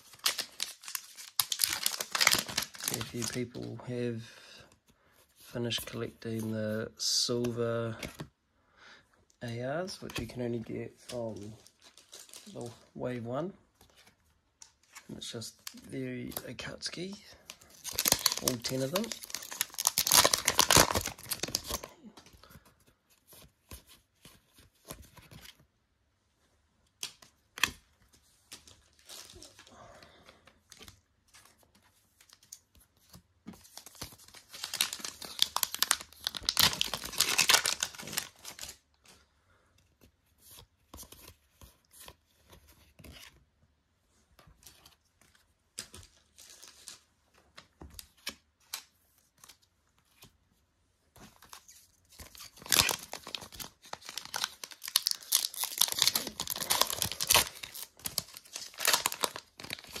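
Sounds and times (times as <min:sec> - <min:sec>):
foil wrappers tearing and crinkling: 0:00.0 - 0:03.4, 0:17.6 - 0:21.9, 0:33.8 - 0:38.8, 0:52.3 - 1:00.0.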